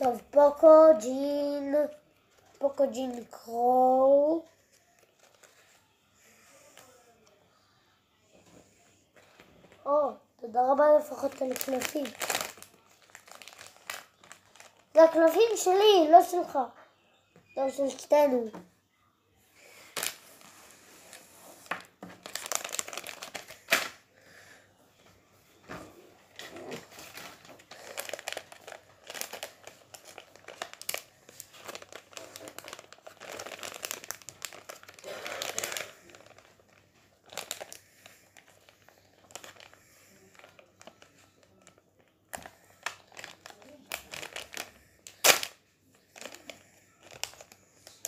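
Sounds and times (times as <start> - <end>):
plastic wrapper crinkling and tearing: 0.0 - 5.8, 10.5 - 16.5, 19.7 - 24.0, 26.3 - 48.0.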